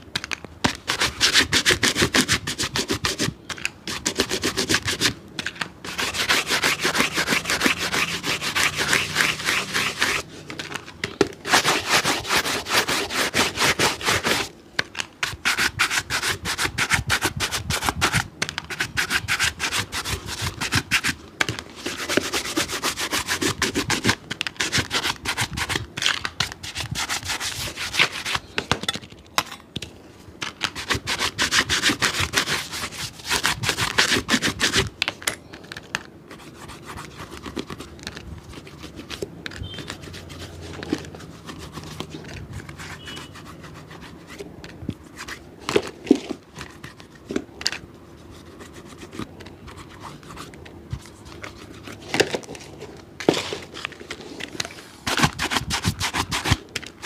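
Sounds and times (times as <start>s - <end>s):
rubbing strokes on a shoe: 0.7s - 5.2s, 5.9s - 10.3s, 11.5s - 14.5s, 15.2s - 21.2s, 21.8s - 25.8s, 26.5s - 28.5s, 30.7s - 34.9s, 36.4s - 44.4s, 55.1s - 56.6s.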